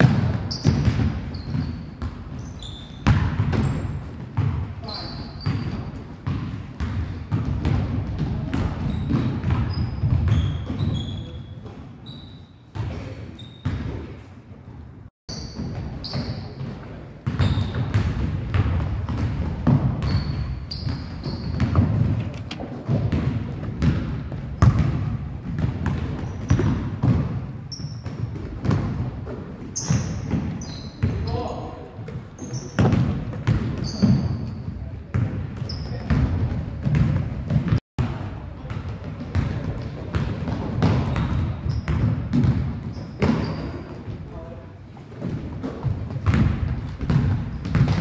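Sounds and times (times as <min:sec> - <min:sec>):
basketball bouncing on hardwood floor: 0:00.0 - 0:02.4, 0:03.0 - 0:04.6, 0:05.4 - 0:11.0, 0:15.6 - 0:27.4, 0:28.0 - 0:29.2, 0:32.1 - 0:34.5, 0:35.1 - 0:37.8, 0:38.7 - 0:44.2, 0:45.2 - 0:48.0
sneakers squeaking: 0:00.0 - 0:37.8, 0:38.6 - 0:44.4, 0:45.0 - 0:48.0.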